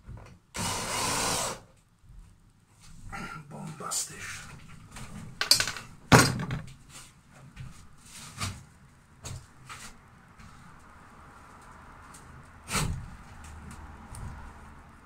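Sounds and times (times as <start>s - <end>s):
hard objects knocking and clattering: 5.4s - 6.7s.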